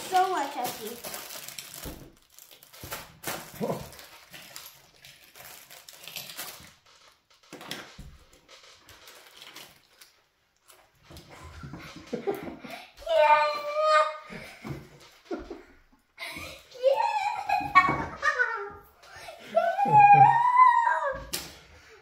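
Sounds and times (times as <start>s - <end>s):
plastic wrappers crinkling: 0.0s - 11.3s.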